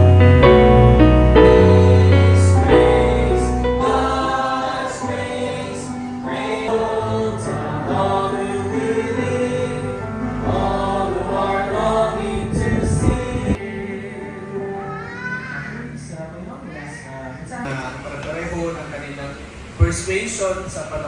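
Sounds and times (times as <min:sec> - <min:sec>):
congregation singing a hymn: 0:00.0 - 0:14.9
piano music: 0:00.0 - 0:17.5.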